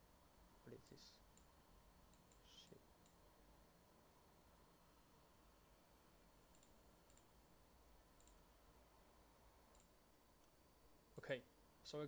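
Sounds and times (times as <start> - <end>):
computer mouse clicks: 1.3 - 3.2, 6.4 - 7.4, 8.1 - 8.5, 9.6 - 10.6.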